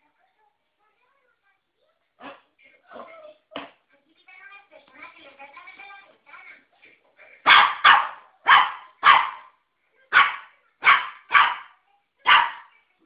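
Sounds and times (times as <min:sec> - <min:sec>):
puppy barking: 0:07.4 - 0:12.8.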